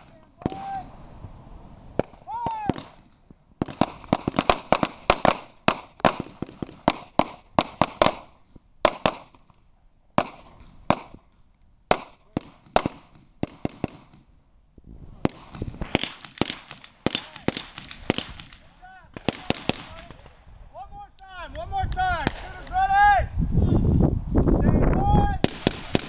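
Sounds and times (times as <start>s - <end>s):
pistol shots: 2.0s - 9.4s, 10.2s - 11.2s, 11.9s - 14.2s, 15.2s - 20.4s, 25.4s - 26.0s.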